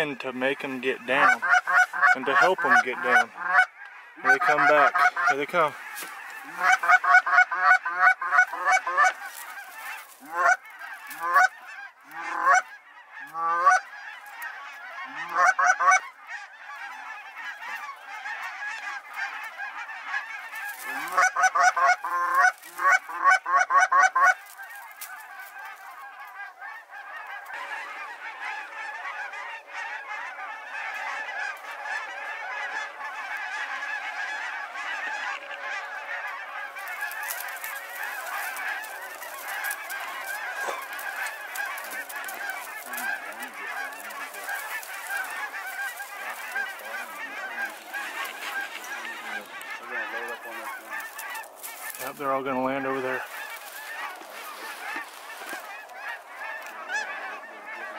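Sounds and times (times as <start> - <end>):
flock of geese calling overhead: 0.0 - 57.9
geese honking: 0.0 - 57.9.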